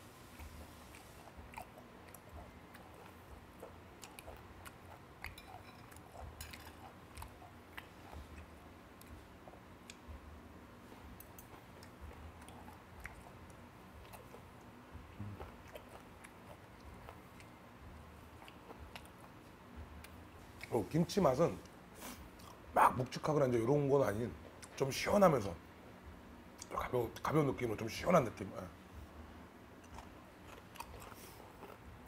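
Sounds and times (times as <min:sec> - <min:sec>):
person chewing: 0:00.2 - 0:10.1, 0:11.0 - 0:20.8, 0:22.1 - 0:22.9, 0:29.8 - 0:32.0.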